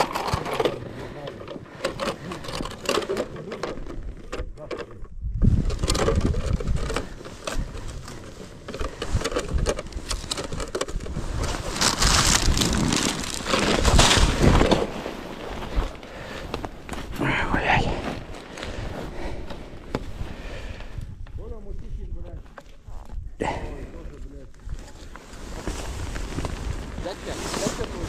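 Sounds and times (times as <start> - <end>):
ice auger drilling through ice: 5.7 - 15.0.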